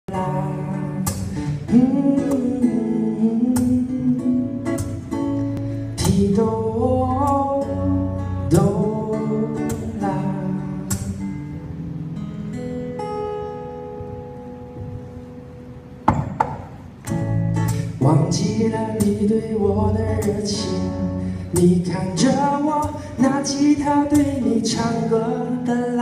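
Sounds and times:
person singing wordless melody: 0.0 - 4.8, 6.0 - 11.0, 17.9 - 26.0
strummed acoustic guitar: 0.1 - 26.0.

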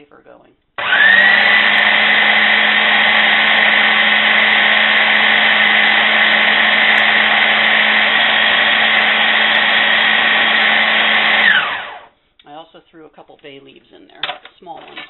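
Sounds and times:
food processor grinding: 0.8 - 12.1.

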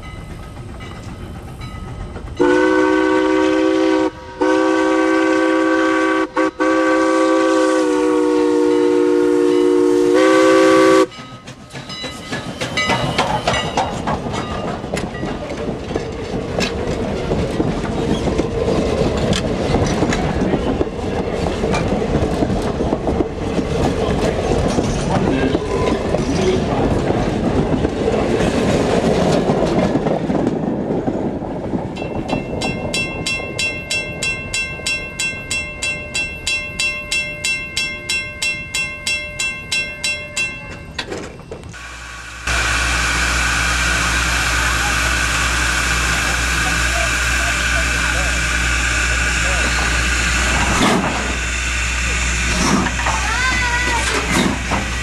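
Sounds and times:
train coaches rumbling past: 0.0 - 55.0
steam locomotive whistle: 2.4 - 11.1
wheels clicking over rail joints: 11.0 - 41.8, 52.5 - 55.0.

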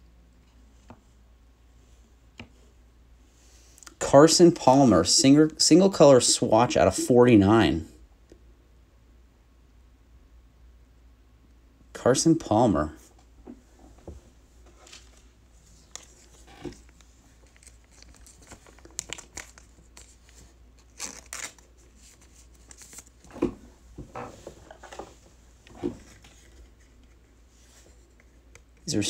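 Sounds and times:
plastic crinkling and rustling: 14.6 - 23.4.

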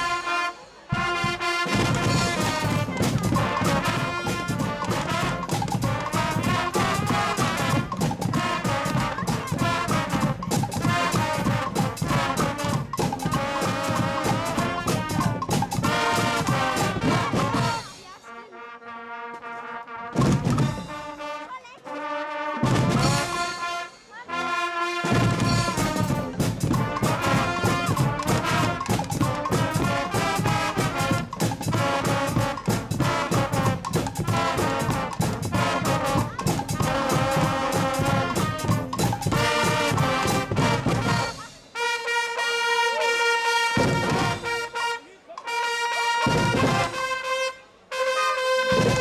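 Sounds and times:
drum kit: 0.0 - 18.2, 20.2 - 21.1, 22.6 - 23.7, 25.0 - 41.7, 43.8 - 44.8, 46.2 - 47.2, 48.7 - 49.0
brass band playing: 0.0 - 49.0.

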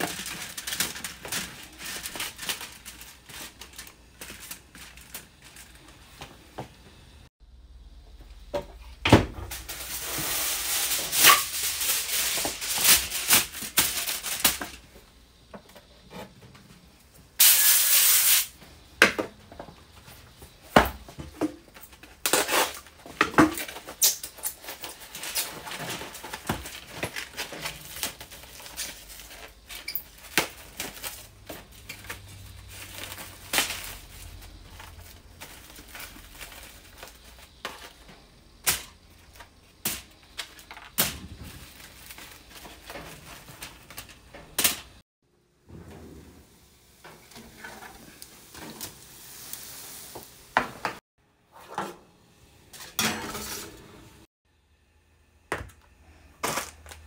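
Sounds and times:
aluminium foil crinkling: 0.0 - 6.2, 9.5 - 15.0, 21.7 - 45.0, 56.4 - 57.0.

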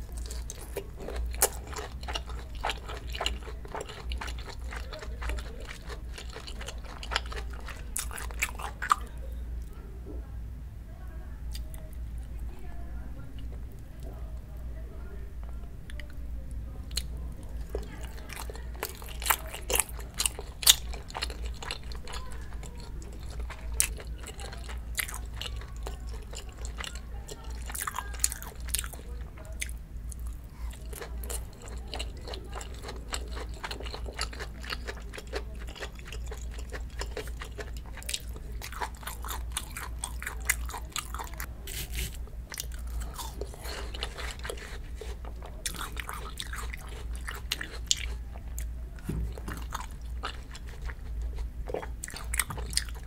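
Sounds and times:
person chewing food: 0.0 - 9.1, 16.9 - 53.0
food crunching: 0.0 - 9.7, 16.9 - 53.0.

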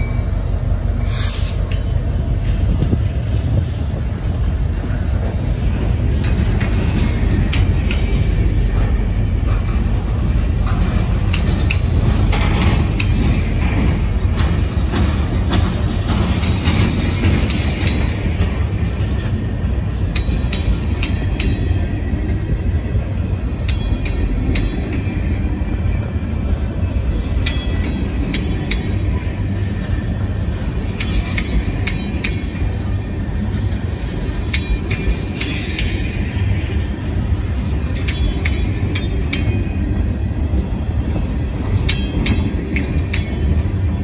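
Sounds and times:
wheel squeals: 0.0 - 7.5
train wheels rumbling on rail: 0.0 - 44.0.

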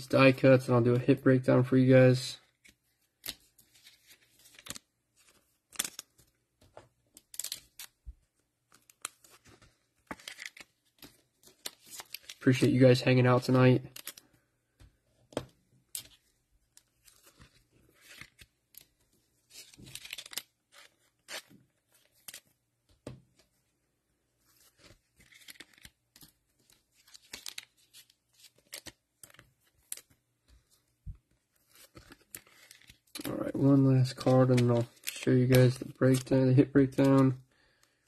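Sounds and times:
cards rustling and scraping: 2.4 - 23.6, 24.3 - 38.0.

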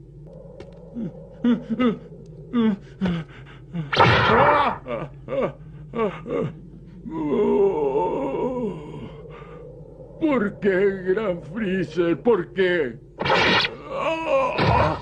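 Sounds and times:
strained cry: 0.9 - 9.6.

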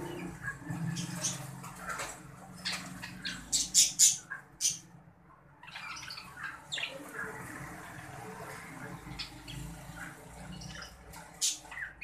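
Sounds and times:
budgerigars chirping and squawking: 0.0 - 12.0.

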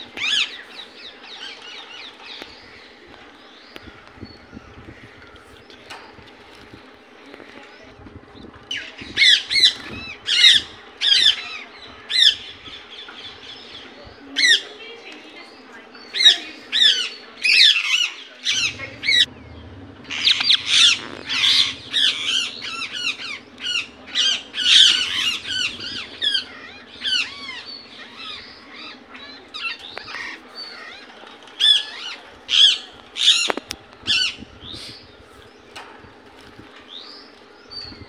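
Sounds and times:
parakeet calling: 20.1 - 30.9.

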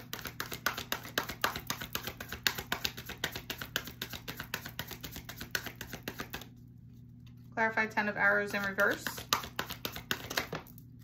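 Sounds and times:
cards being shuffled: 0.0 - 7.1, 8.6 - 10.8.

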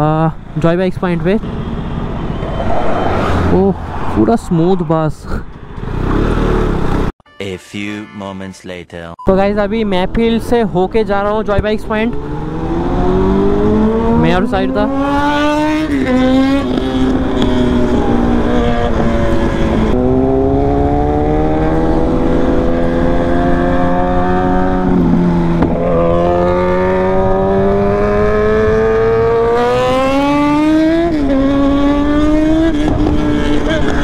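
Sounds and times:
motorcycle engine accelerating: 5.5 - 7.1, 11.1 - 34.0.

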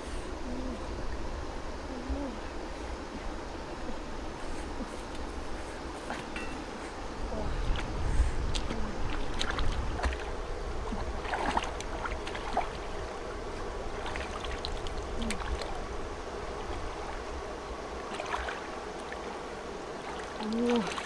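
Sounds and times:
feet wading in muddy water: 4.4 - 15.9, 18.0 - 21.0.

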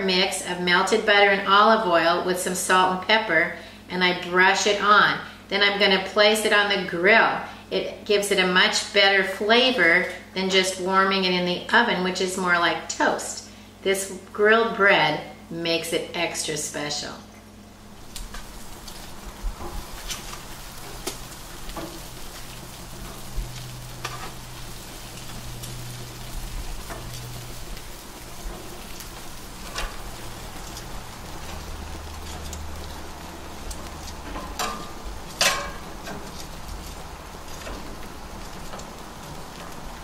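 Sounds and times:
low steady hum: 0.0 - 40.0
bread sizzling on a grill: 17.5 - 40.0
metal tongs clicking on grates: 26.8 - 39.8.

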